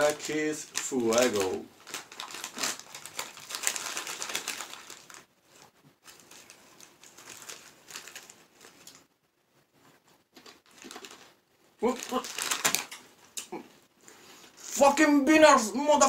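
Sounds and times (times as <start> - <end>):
snack bag crinkling: 0.0 - 9.1, 10.3 - 13.5.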